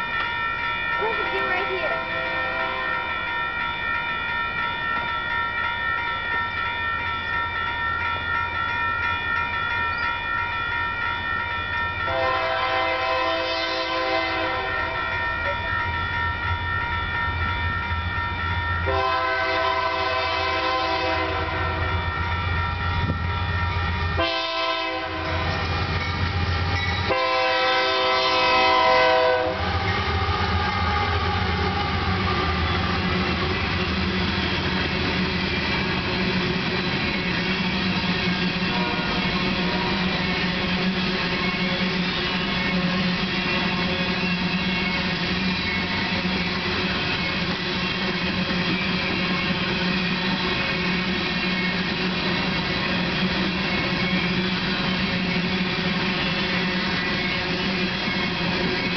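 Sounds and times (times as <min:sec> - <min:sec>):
crossing bell ringing: 0:00.0 - 0:58.9
locomotive air horn: 0:12.1 - 0:14.9, 0:18.9 - 0:21.8, 0:24.2 - 0:25.6, 0:27.1 - 0:32.5, 0:38.7 - 0:39.2.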